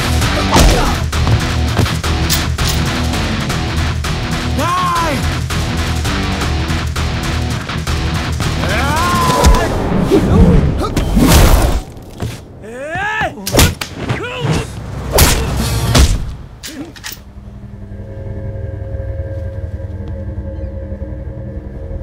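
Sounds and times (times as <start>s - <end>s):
people shouting: 8.6s - 9.7s
low steady drone: 17.3s - 22.0s.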